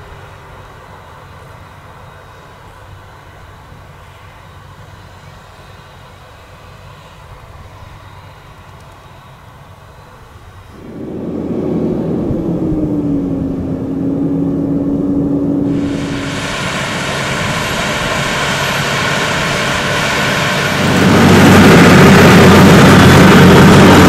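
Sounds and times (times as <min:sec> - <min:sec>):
tractor diesel engines working hard: 0:10.8 - 0:24.0.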